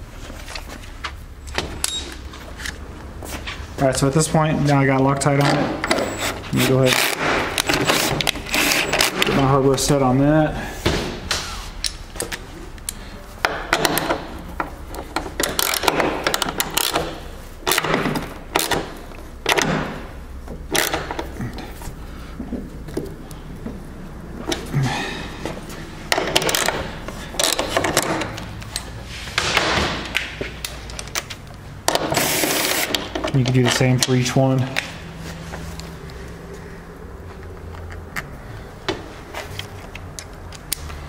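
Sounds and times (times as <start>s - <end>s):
tool clicking and knocking on metal: 13.4s - 21.7s, 26.1s - 34.9s
rubbing sounds: 28.5s - 30.9s.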